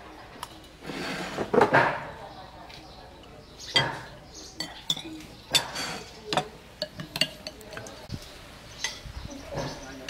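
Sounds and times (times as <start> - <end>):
spoons clinking on plates: 3.7 - 8.1.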